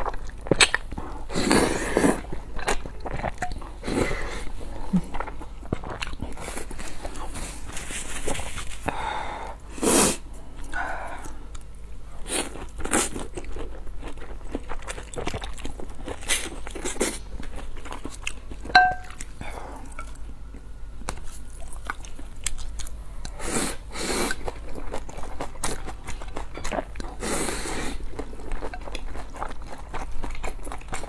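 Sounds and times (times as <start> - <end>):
chewing and smacking mouth noises: 0.0 - 1.1, 2.0 - 3.8, 4.8 - 8.9, 12.3 - 23.4, 24.2 - 27.2, 28.0 - 31.0
tableware clink: 18.7 - 19.2.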